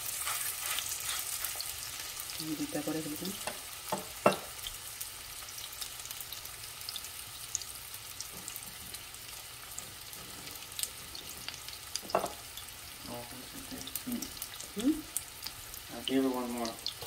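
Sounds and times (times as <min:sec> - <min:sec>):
meat sizzling in oil: 0:00.0 - 0:17.0.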